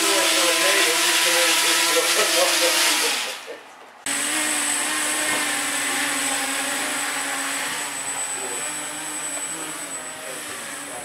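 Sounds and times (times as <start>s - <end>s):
drone motors whining: 4.1s - 11.0s.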